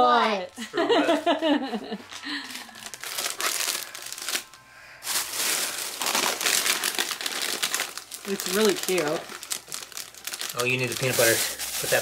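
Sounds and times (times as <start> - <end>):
plastic snack bags rustling: 2.4 - 12.0.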